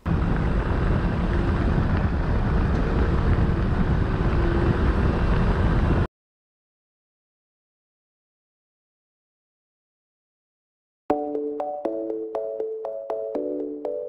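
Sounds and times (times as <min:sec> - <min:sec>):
road noise: 0:00.0 - 0:06.1
scooter engine running: 0:00.0 - 0:06.1
wind buffeting microphone: 0:00.0 - 0:06.1.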